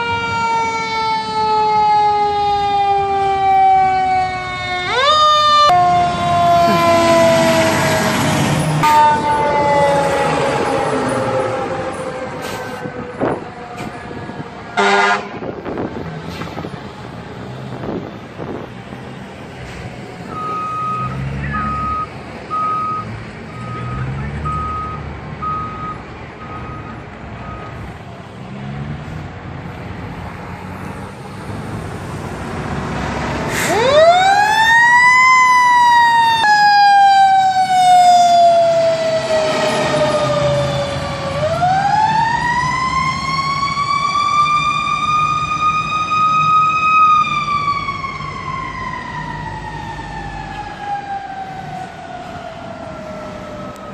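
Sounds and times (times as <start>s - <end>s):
fire engine siren wailing: 0.0s - 53.9s
air horn blast: 14.8s - 15.5s.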